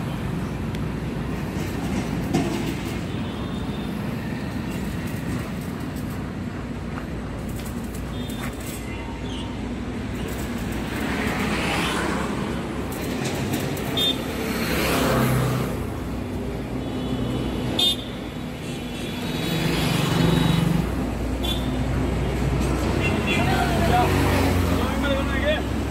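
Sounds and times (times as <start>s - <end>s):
road traffic passing: 0.0s - 25.9s.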